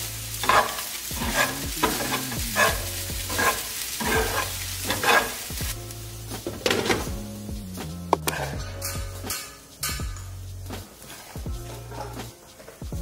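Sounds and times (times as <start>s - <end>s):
light frying sizzle: 0.0s - 13.0s
metal spoon scraping a pan: 0.3s - 5.7s, 8.1s - 12.8s.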